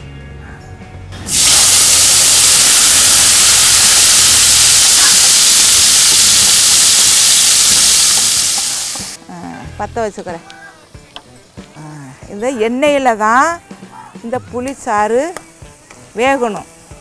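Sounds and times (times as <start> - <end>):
hissing sizzle of liquid in hot oil: 1.3 - 9.2, 15.5 - 17.0.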